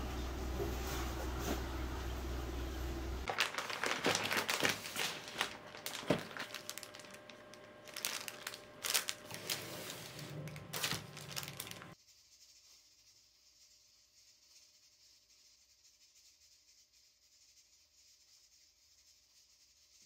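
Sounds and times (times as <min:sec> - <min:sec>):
plastic wrapping and card crinkling: 0:03.2 - 0:12.0.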